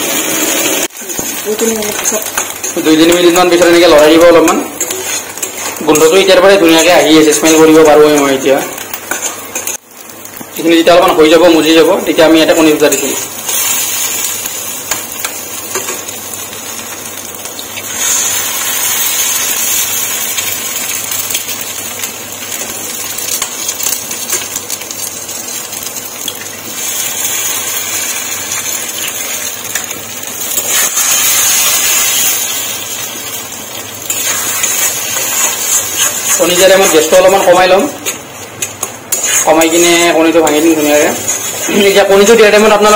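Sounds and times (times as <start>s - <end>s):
food sizzling in oil: 0.0s - 42.9s
metal spatula scraping pan: 4.8s - 6.2s, 38.6s - 42.0s.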